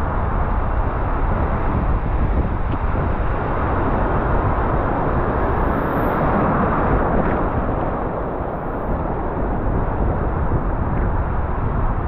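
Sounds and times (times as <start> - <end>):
wind on microphone: 0.0 - 12.0
heavy surf: 3.2 - 11.2.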